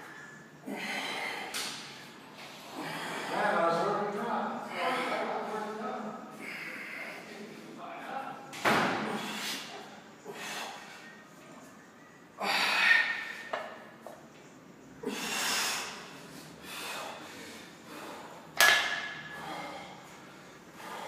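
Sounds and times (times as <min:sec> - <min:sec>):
man breathing hard: 0:00.0 - 0:03.5, 0:06.3 - 0:07.5, 0:09.1 - 0:11.2, 0:12.3 - 0:13.5, 0:15.0 - 0:21.0.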